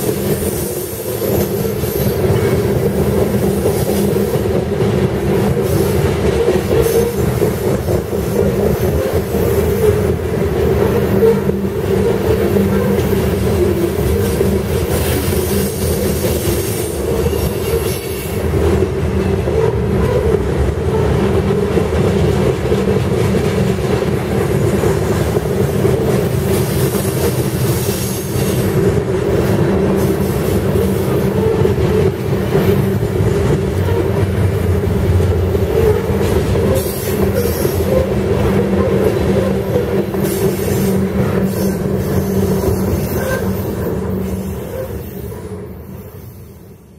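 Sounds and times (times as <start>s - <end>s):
train wheels on rails: 0.0s - 46.9s.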